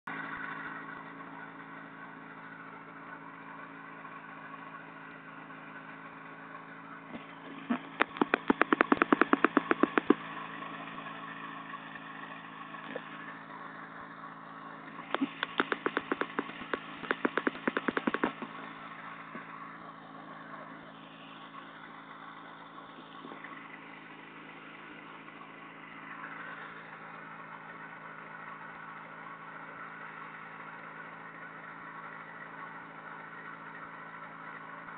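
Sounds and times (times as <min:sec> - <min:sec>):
engine idling: 0:00.1 - 0:34.9
rapid loud crackling: 0:07.2 - 0:10.4, 0:14.9 - 0:19.6.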